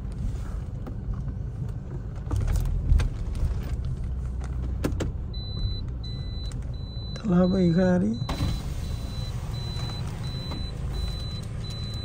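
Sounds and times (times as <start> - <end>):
car engine idling: 3.9 - 12.0.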